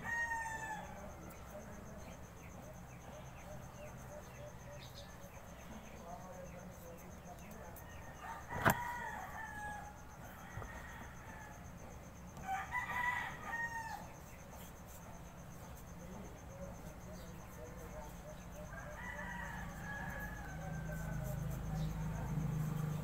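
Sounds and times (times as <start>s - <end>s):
rooster crowing: 0.0s - 1.0s, 7.9s - 11.7s, 12.4s - 14.1s, 18.7s - 22.1s.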